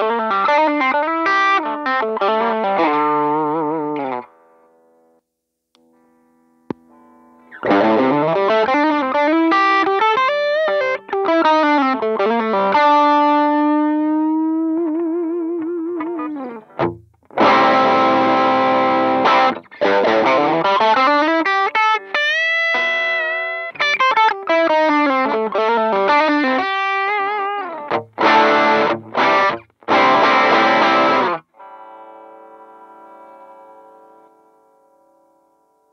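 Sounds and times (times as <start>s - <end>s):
electric guitar strummed chords: 0.0s - 4.3s, 5.8s - 35.3s
distorted electric guitar licks: 6.7s - 34.3s.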